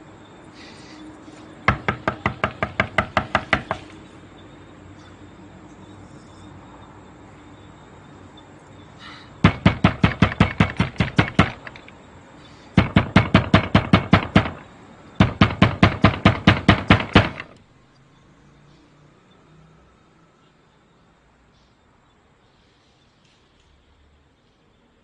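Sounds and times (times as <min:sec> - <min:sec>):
hand banging on wooden doors: 0:01.7 - 0:03.9, 0:09.4 - 0:11.8, 0:12.8 - 0:17.6.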